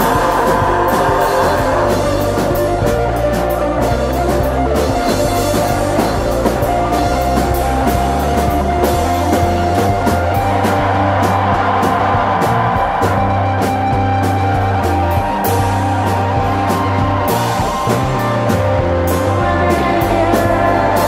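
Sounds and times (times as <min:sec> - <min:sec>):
drum kit beat: 0:00.0 - 0:21.0
held bass line: 0:00.0 - 0:21.0
sustained guitar tones: 0:00.0 - 0:21.0.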